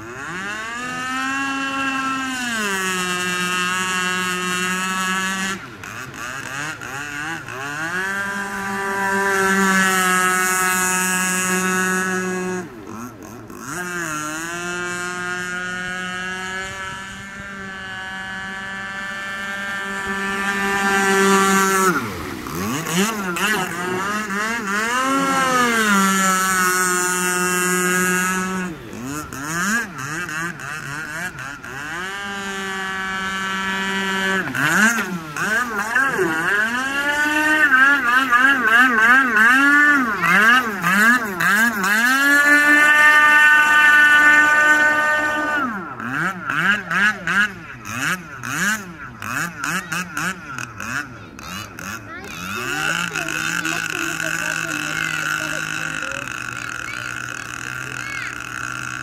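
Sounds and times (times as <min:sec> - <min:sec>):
model speedboat motor running: 0:00.0 - 0:59.0.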